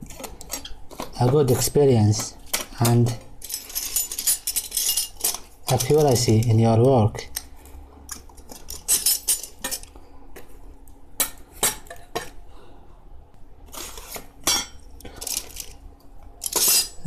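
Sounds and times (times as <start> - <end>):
metal plates clinking and rattling: 2.2 - 6.5, 8.5 - 9.9, 16.4 - 17.0.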